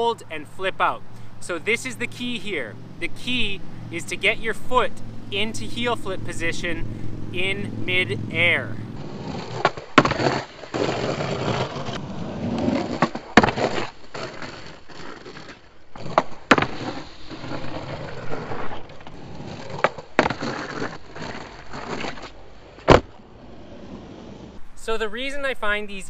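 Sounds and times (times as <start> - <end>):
skateboard rolling on concrete: 0.0 - 24.7
skateboard sliding on concrete ledge: 9.0 - 24.6
skateboard clacking: 9.2 - 18.3.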